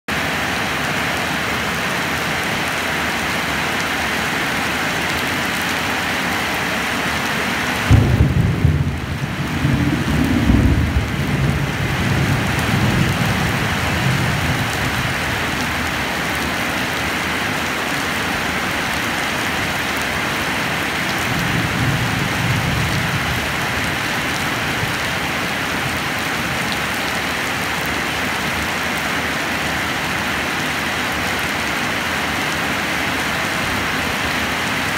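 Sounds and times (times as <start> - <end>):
heavy rain: 0.1 - 34.9
thunder rumbling: 7.9 - 15.9.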